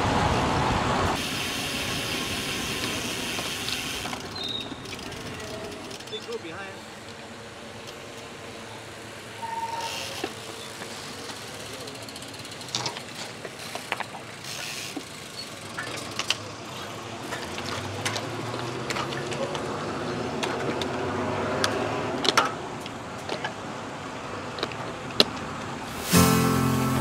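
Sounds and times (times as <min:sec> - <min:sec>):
steady road noise: 0:00.0 - 0:27.0
music: 0:25.9 - 0:27.0.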